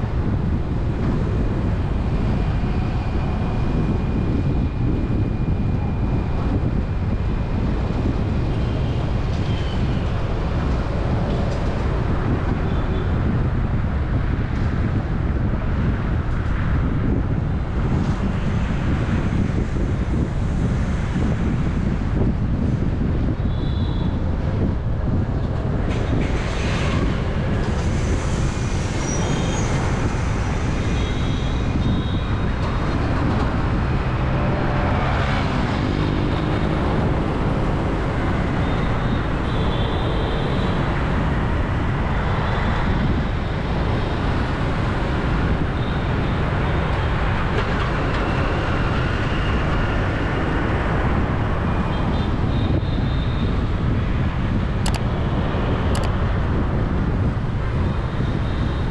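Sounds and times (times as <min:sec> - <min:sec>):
road traffic rumble: 0:00.0 - 0:58.9.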